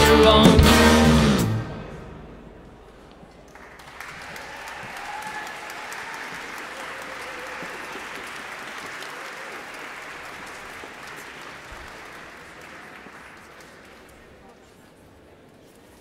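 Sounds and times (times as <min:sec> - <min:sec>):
audience applauding: 0:03.4 - 0:14.5.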